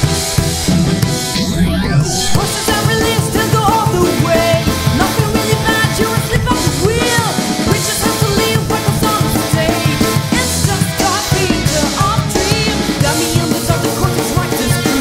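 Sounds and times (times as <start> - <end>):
drum kit beat: 0.0 - 15.0
rock band playing: 0.0 - 15.0.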